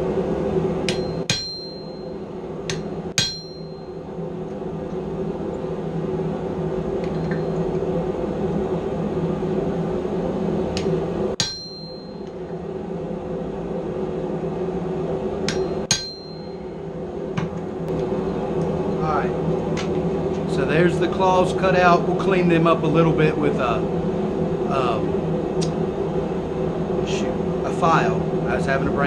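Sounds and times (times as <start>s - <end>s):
steady hum: 0.0s - 29.0s
hammer striking chisel on steel: 0.9s - 1.9s, 2.7s - 3.8s, 11.4s - 12.2s, 15.5s - 16.5s.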